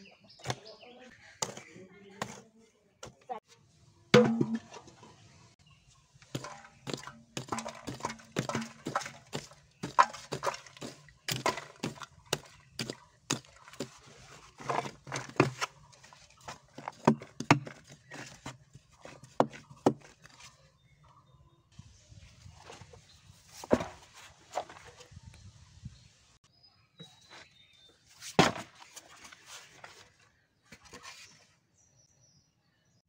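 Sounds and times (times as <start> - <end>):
metal bowl knocking: 4.2 - 4.9, 6.4 - 12.1
hoe chopping and scraping soil: 6.2 - 20.5.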